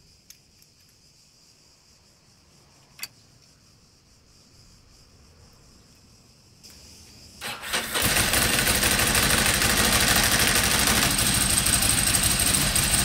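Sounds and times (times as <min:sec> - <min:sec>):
faint high hiss: 0:00.0 - 0:07.6.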